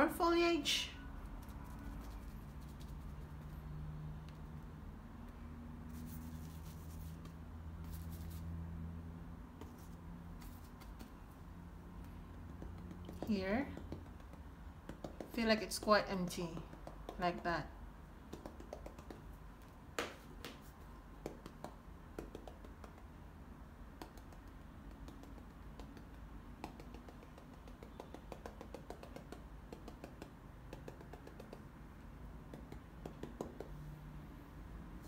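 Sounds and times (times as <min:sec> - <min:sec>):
paintbrush tapping on canvas: 0:12.0 - 0:15.4, 0:16.4 - 0:17.3, 0:18.3 - 0:23.1, 0:24.0 - 0:31.7, 0:32.5 - 0:33.8.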